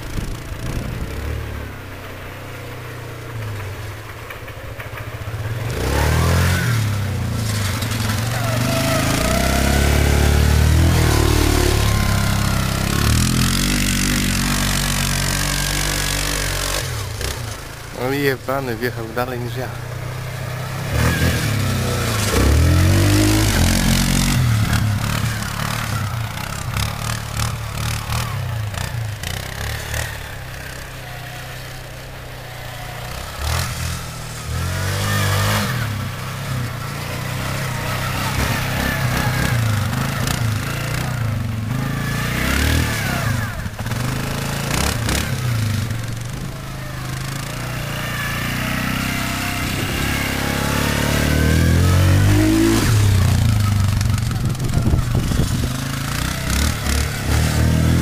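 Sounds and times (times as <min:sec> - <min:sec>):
quad engine revving: 0:00.0 - 0:58.0
wind buffeting microphone: 0:53.0 - 0:56.2.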